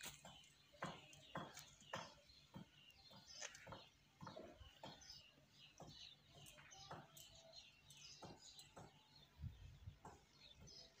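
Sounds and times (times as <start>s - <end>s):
faint small birds chirping: 0.0s - 11.0s.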